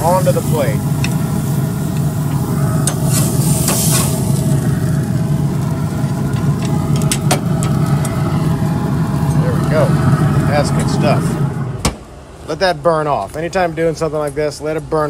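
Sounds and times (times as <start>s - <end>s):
metal spatula scraping grill grate: 0.0s - 4.4s
fish sizzling: 0.0s - 11.8s
low hum: 0.0s - 12.8s.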